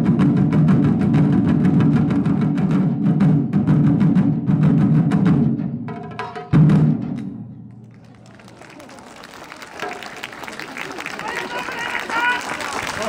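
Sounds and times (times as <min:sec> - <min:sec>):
taiko drum ensemble playing: 0:00.0 - 0:07.6.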